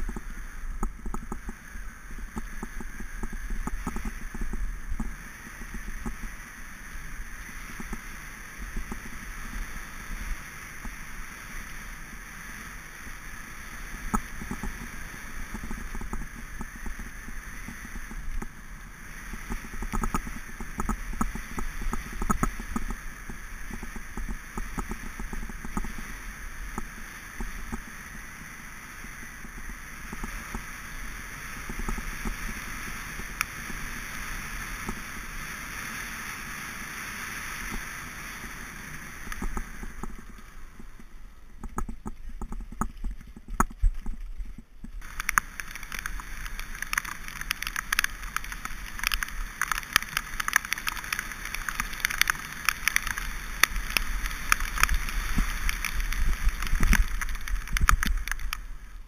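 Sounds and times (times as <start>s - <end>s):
tyres on gravel: 37.8s - 58.8s
bike rattling over bumps: 39.0s - 58.6s.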